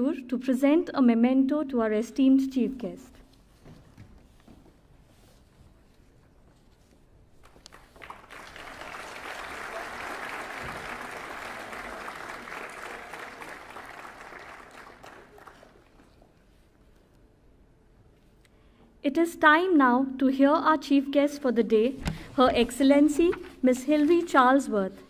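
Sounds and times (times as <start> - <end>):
audience applauding: 7.4 - 16.3.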